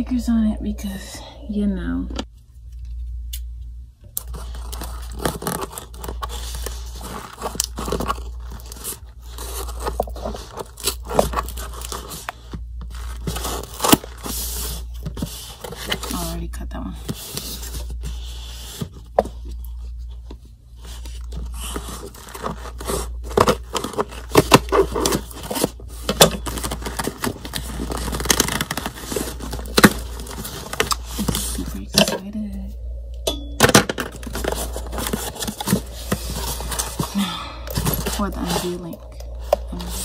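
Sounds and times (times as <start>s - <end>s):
packing tape peeling and tearing: 4.2s - 14.7s, 21.6s - 31.6s
cardboard flaps rustling: 20.8s - 31.9s, 33.6s - 40.0s.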